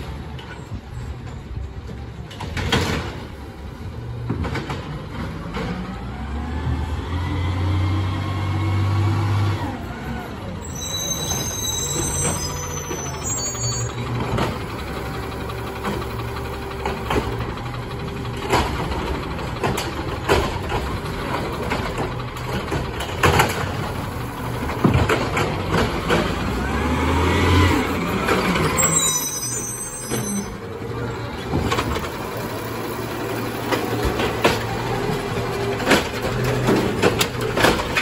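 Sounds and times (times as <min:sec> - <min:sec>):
garbage truck engine running: 0:00.0 - 0:38.0
hydraulic arm lifting cart: 0:00.0 - 0:38.0
brakes squealing: 0:08.8 - 0:38.0
recycling clattering into hopper: 0:14.0 - 0:28.8, 0:31.3 - 0:38.0.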